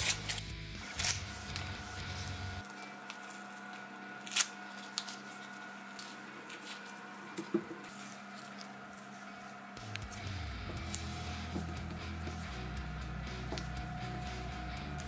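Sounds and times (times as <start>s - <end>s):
tape and paper crinkling: 0.0s - 11.7s.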